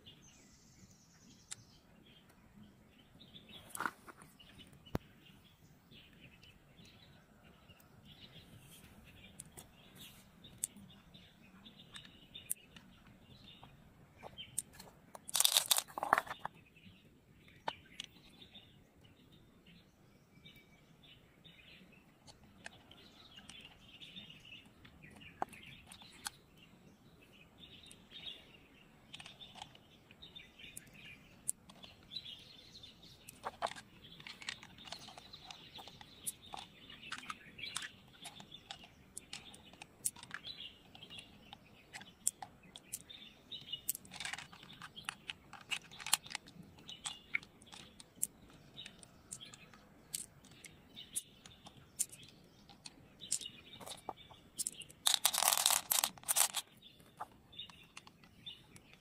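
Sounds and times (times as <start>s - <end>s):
birds chirping: 0.0s - 59.0s
small clicks from mussel flesh: 33.2s - 43.2s, 43.8s - 59.0s.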